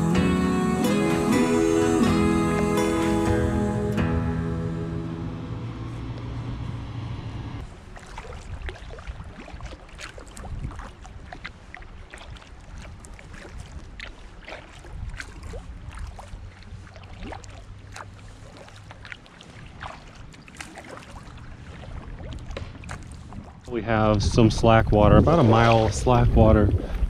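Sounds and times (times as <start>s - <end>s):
low rumble: 0.0s - 7.7s
paddle splashes and drips: 7.6s - 24.4s.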